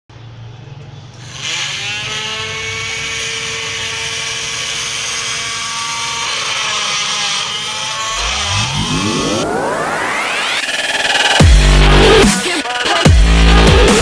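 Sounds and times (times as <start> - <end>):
drill motor whining: 1.3 - 11.4.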